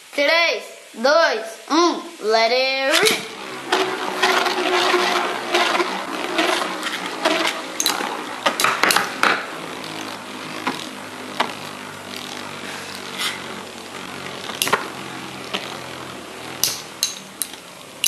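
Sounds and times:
spinning tops whirring: 0:02.7 - 0:18.0
spinning tops clashing clicks: 0:16.6 - 0:17.7.

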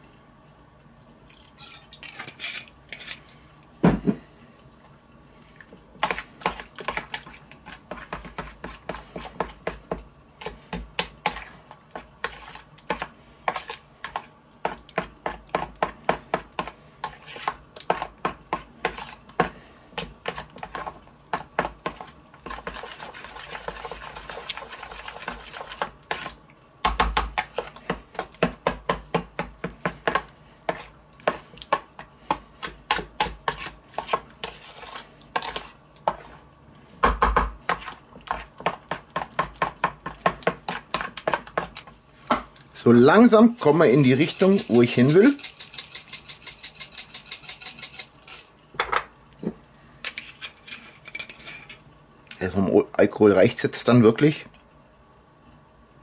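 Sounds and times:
spoon stirring in plastic bowl: 0:06.0 - 0:36.4, 0:37.2 - 0:42.4, 0:43.1 - 0:48.5.

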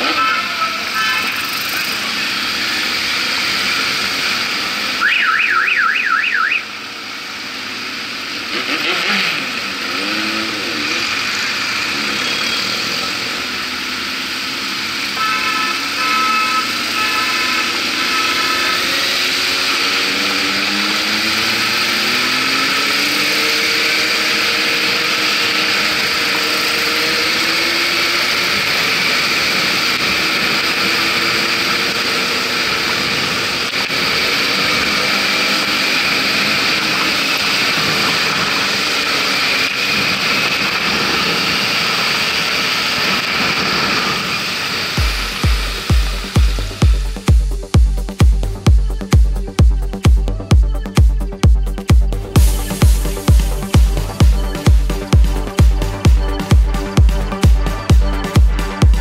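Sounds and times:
horns tooting: 0:00.0 - 0:02.2, 0:15.0 - 0:20.4
motorcycle engines running: 0:00.0 - 0:05.1, 0:06.7 - 0:59.0.

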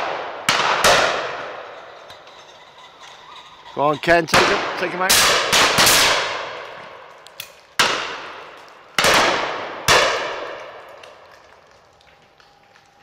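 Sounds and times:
shotgun shots: 0:00.0 - 0:01.6, 0:04.3 - 0:06.6, 0:07.8 - 0:10.8.

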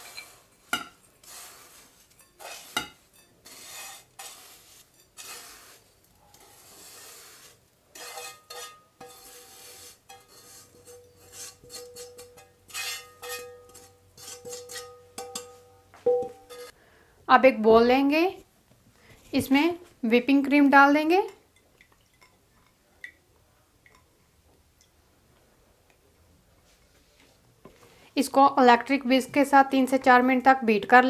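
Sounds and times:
spatula scraping frying pan: 0:00.0 - 0:15.7, 0:16.4 - 0:16.8.

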